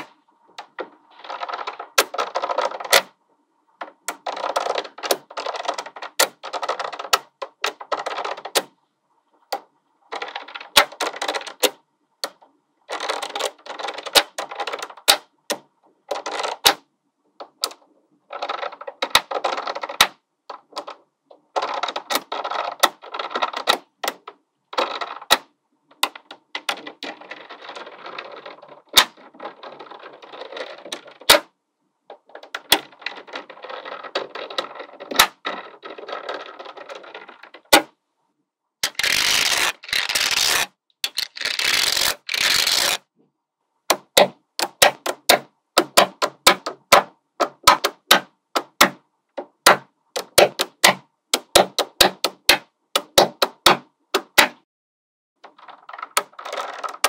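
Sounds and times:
magnetic balls rattling: 0:17.4 - 0:31.5, 0:32.1 - 0:37.9, 0:38.8 - 0:43.0, 0:43.9 - 0:54.4, 0:55.4 - 0:57.0
magnetic balls clicking together: 0:43.9 - 0:54.4, 0:55.4 - 0:57.0.

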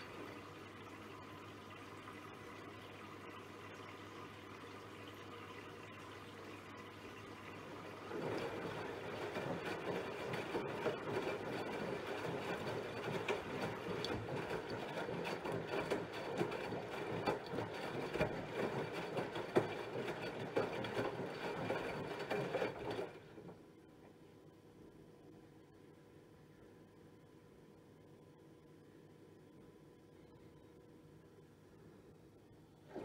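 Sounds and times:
quiet washing machine motor: 0:00.0 - 0:33.0
laundry tumbling in washing machine: 0:07.6 - 0:23.7.

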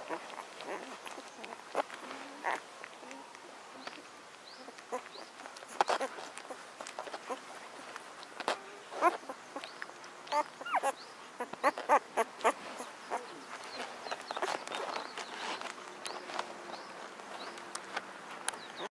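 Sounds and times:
puppies squeaking and whining: 0:00.0 - 0:02.6, 0:04.6 - 0:07.4, 0:08.4 - 0:09.7, 0:10.3 - 0:15.2.

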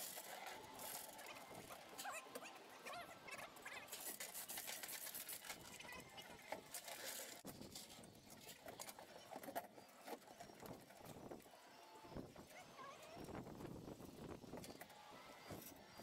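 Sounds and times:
chain hoist clicking and rattling: 0:00.0 - 0:02.4, 0:03.6 - 0:11.2.

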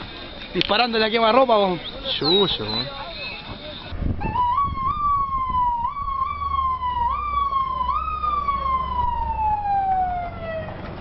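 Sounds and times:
police siren: 0:04.2 - 0:11.0.

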